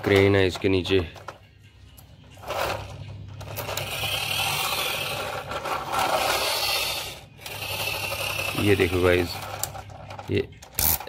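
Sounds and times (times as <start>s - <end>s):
toy truck wheels whirring rattle: 2.4s - 11.0s.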